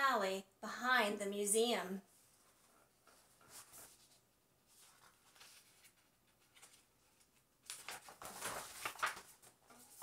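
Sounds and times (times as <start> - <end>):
paper page rustling: 2.2 - 10.0.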